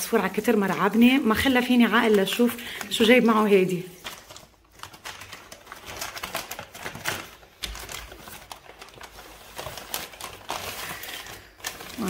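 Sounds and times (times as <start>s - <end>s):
paper wrapping crinkling: 0.0s - 12.0s.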